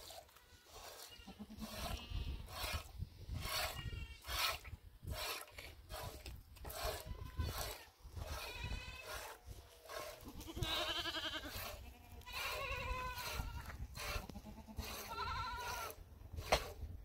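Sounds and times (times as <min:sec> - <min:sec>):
goats bleating: 0:10.3 - 0:15.9.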